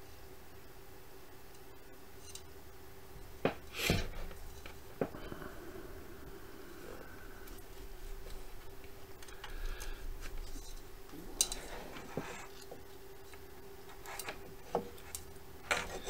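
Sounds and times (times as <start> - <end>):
faint steady hum: 0.0 - 16.0
cables clicking and handling: 3.2 - 5.4, 6.2 - 16.0.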